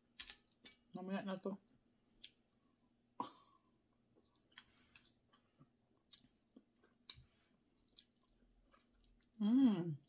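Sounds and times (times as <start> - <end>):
chewing and mouth clicks: 4.1 - 9.4.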